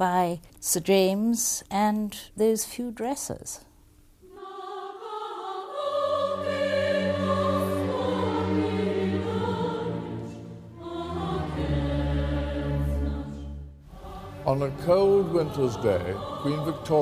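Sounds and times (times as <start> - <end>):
choir singing sustained chords: 4.2 - 17.0.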